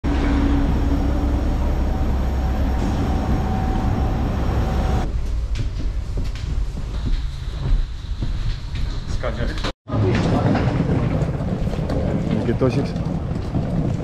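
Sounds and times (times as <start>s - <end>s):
aircraft turbine whine: 0.0s - 5.1s
footsteps: 1.2s - 9.8s.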